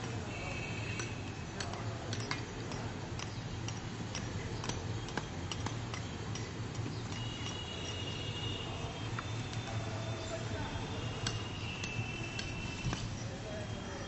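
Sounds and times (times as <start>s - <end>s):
low hum of traffic: 0.0s - 14.0s.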